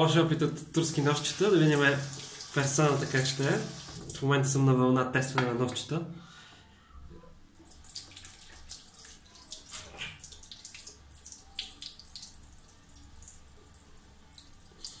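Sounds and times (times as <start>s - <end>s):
tap water splashing into sink: 7.9s - 12.3s.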